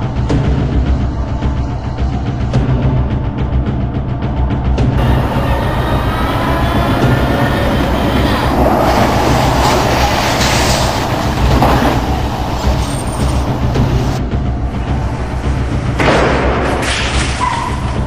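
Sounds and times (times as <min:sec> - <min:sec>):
tank tracks and engine clanking: 0:05.0 - 0:14.2
loud rushing noise: 0:05.0 - 0:17.5.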